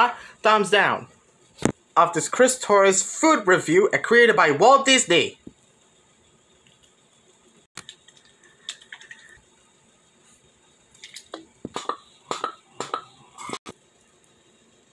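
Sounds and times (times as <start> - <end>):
man gulping a drink: 11.0 - 13.6.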